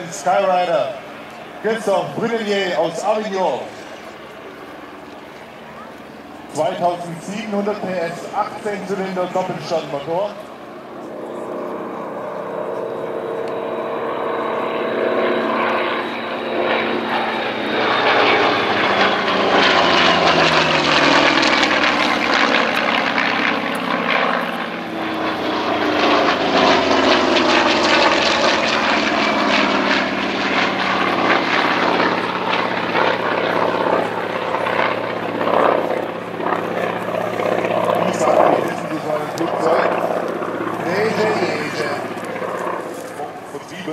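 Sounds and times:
propeller plane flying past: 0:00.0 - 0:43.9.

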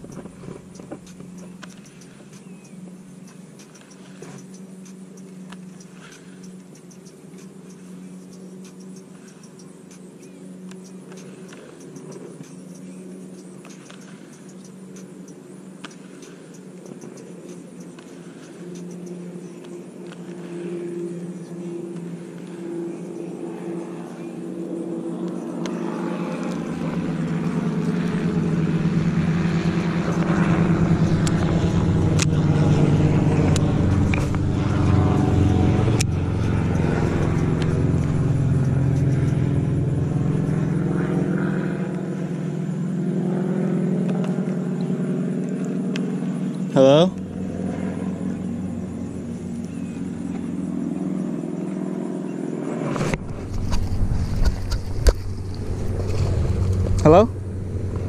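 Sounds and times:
sharp clicks: 0:00.0 - 0:20.3, 0:29.5 - 0:32.4, 0:33.5 - 0:40.6
motor drone: 0:00.0 - 0:58.0.

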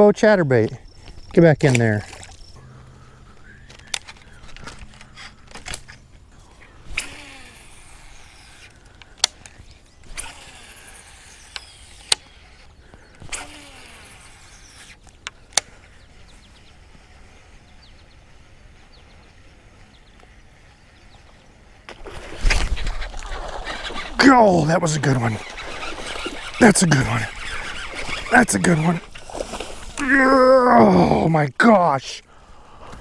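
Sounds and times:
fishing reel clicks: 0:06.9 - 0:12.4, 0:25.4 - 0:29.2.

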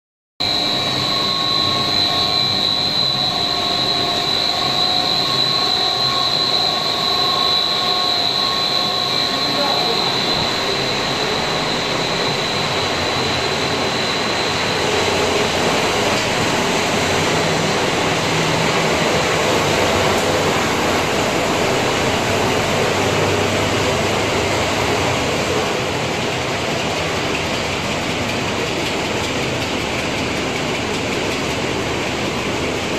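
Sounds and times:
dense machinery noise: 0:00.4 - 0:32.9.

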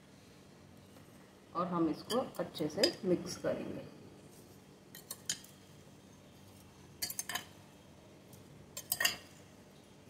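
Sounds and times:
metal spoon clinking glass bowl: 0:07.0 - 0:07.5, 0:08.8 - 0:09.4.

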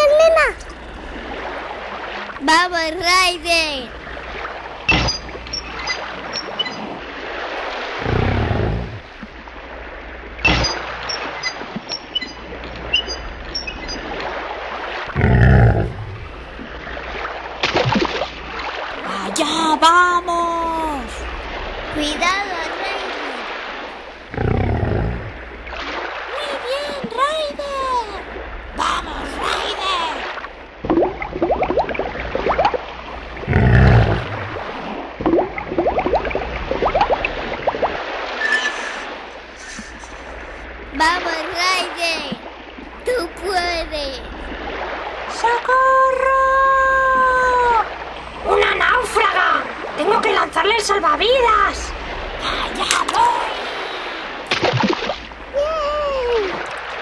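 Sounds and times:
water bubbling and gurgling: 0:00.0 - 0:57.0
water sloshing: 0:00.0 - 0:57.0
big cat roar: 0:07.9 - 0:09.1, 0:15.2 - 0:16.4, 0:24.3 - 0:25.4, 0:33.4 - 0:34.6
short high chirps: 0:38.4 - 0:40.2.

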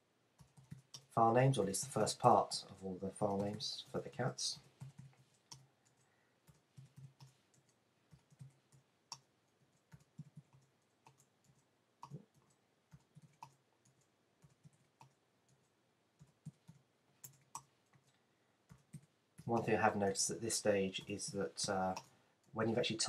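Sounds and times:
keyboard typing: 0:00.4 - 0:01.1, 0:03.1 - 0:19.8.

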